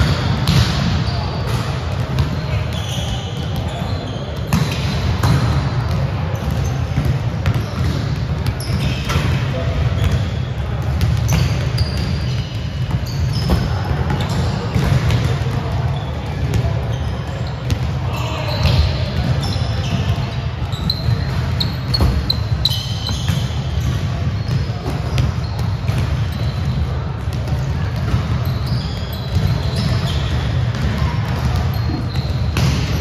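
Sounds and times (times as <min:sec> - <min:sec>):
volleyballs struck and bouncing: 0:00.0 - 0:17.0, 0:17.6 - 0:33.0
shoe squeaks: 0:02.4 - 0:05.4, 0:06.3 - 0:10.6, 0:11.3 - 0:14.9, 0:16.9 - 0:26.9, 0:28.0 - 0:33.0.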